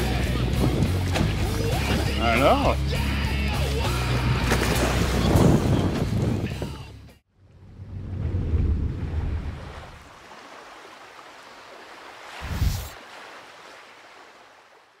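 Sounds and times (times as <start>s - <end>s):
wind buffeting microphone: 4.8s - 6.8s
heavy low rumble: 7.4s - 9.7s
sea water washing: 8.5s - 15.0s.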